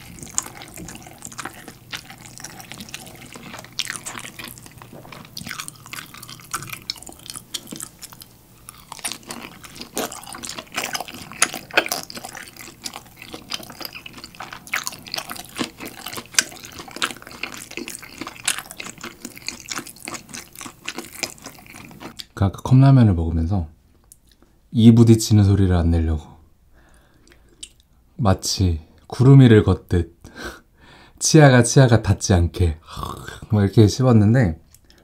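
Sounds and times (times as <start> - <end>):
person chewing wetly: 0.0 - 22.3.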